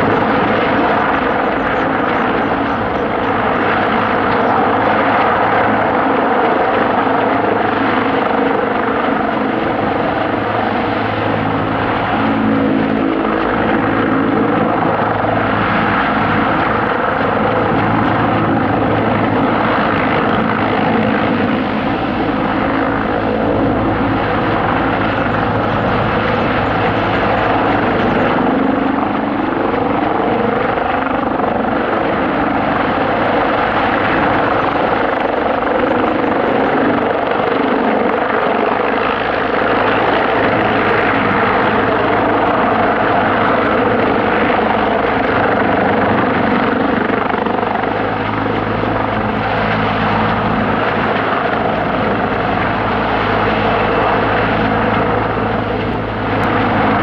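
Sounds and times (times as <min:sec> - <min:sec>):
helicopter engines and rotor drone: 0:00.0 - 0:57.0.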